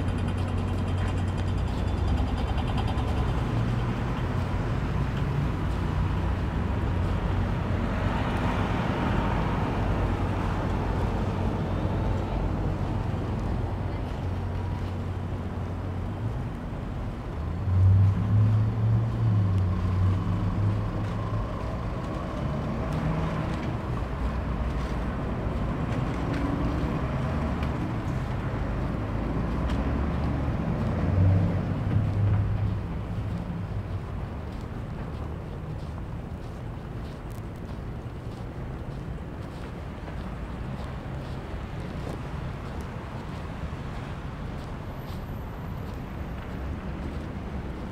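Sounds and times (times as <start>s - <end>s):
cars passing: 0.0s - 47.9s
low engine rumble: 0.0s - 47.9s.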